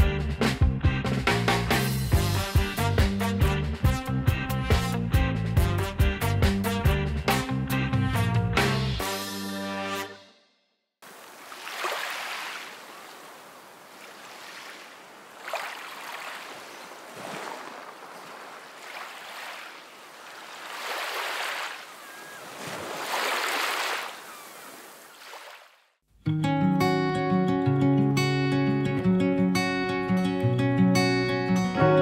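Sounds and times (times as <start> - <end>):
sea waves breaking on shore: 11.0 - 25.9.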